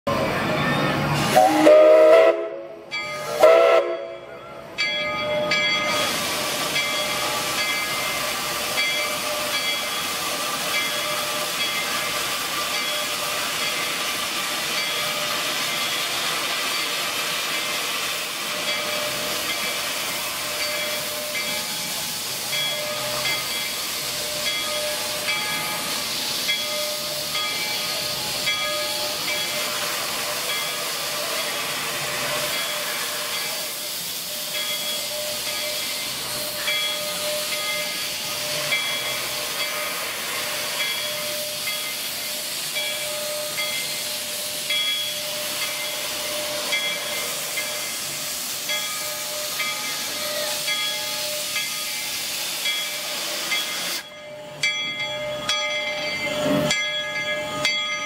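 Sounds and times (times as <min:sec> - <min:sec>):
steam whistle blasts: 0:01.2 - 0:04.4
steam venting hiss: 0:05.4 - 0:55.0.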